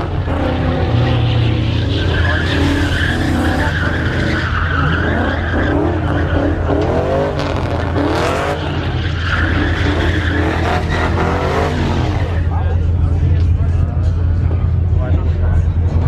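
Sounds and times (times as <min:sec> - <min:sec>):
tires squealing: 0:00.0 - 0:12.5
truck engine revving: 0:00.0 - 0:12.6.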